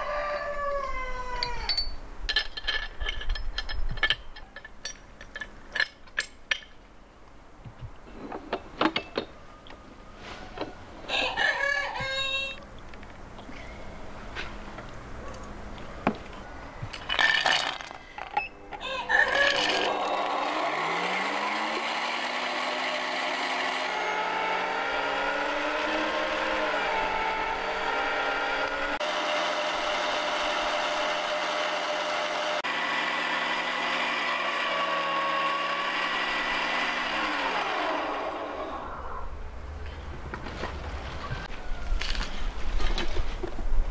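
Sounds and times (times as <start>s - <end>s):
electric meat grinder whining: 19.2s - 38.9s.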